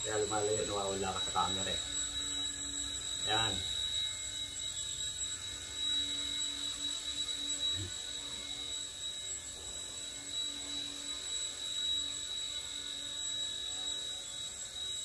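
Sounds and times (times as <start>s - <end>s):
toy helicopter motor whine: 0.0s - 15.0s.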